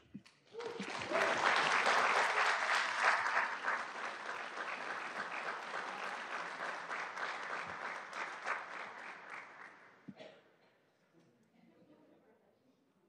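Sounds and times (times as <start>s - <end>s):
audience applauding: 0.0s - 10.0s.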